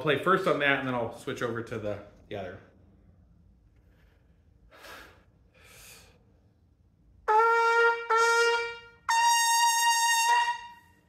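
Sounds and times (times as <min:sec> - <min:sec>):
quick breaths in: 0:03.8 - 0:06.5
trumpet notes: 0:07.2 - 0:11.0.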